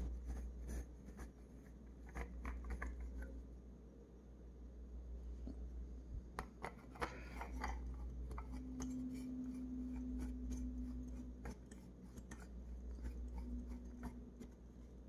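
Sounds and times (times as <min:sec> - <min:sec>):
metal threads rubbing: 0:06.9 - 0:15.0.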